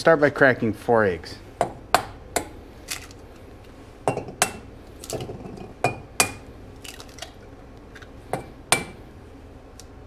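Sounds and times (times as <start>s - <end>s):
eggs tapping on metal bowl: 1.6s - 2.6s, 4.1s - 6.5s, 8.3s - 9.0s.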